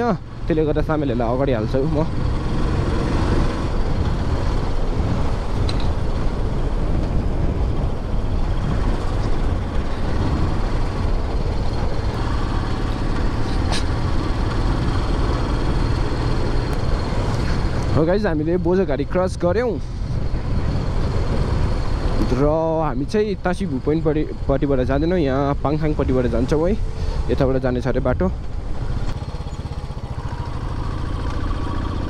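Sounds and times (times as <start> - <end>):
motorcycle engine running: 0.0 - 18.5, 26.8 - 32.0
road and wind noise: 0.0 - 32.0.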